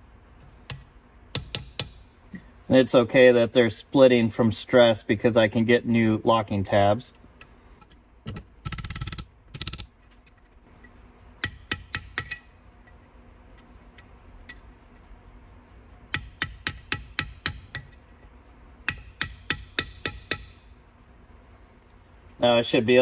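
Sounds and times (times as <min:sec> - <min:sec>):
hammer striking steel punch: 0:00.6 - 0:02.1, 0:11.4 - 0:12.6, 0:16.1 - 0:18.1, 0:18.8 - 0:20.7.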